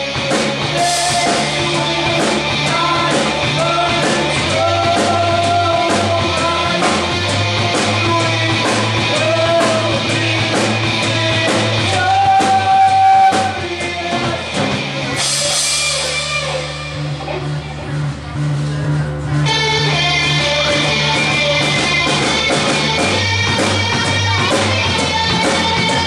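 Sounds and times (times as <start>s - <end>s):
guitar: 0.0s - 26.0s
rock music: 0.0s - 26.0s
steady drum beat: 0.0s - 26.0s
person singing long notes: 0.7s - 7.2s, 7.8s - 14.6s.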